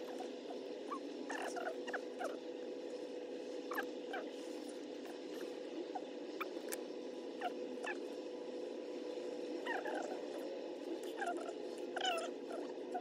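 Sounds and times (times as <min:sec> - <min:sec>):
steady low hum: 0:00.0 - 0:13.0
squeaky animal calls: 0:03.7 - 0:04.3, 0:09.7 - 0:10.2, 0:11.1 - 0:13.0.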